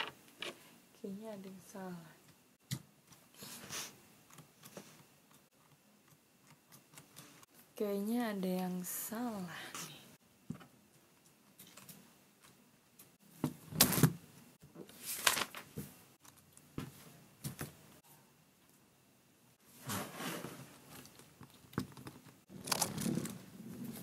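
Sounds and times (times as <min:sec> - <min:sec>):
plastic parts rubbing: 0:19.8 - 0:24.0
plastic parts clicking and rattling: 0:20.9 - 0:24.0.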